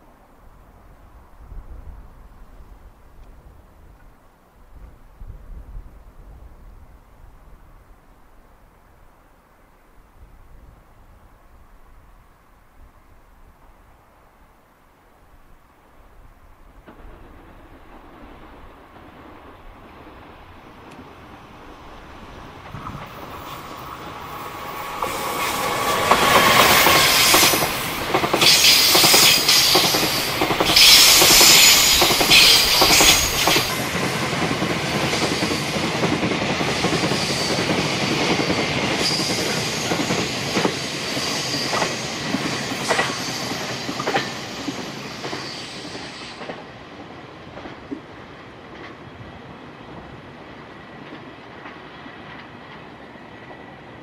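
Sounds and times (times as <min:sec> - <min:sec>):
freight train passing: 0:15.7 - 0:54.0
wheels clicking over rail joints: 0:22.0 - 0:40.8
high wheel squeal: 0:23.3 - 0:33.8, 0:39.0 - 0:46.4.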